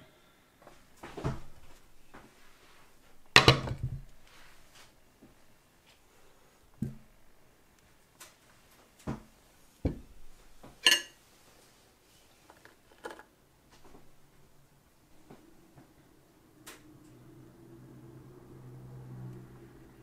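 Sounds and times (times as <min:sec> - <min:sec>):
ceramic dishes clinking: 0:10.8 - 0:11.2.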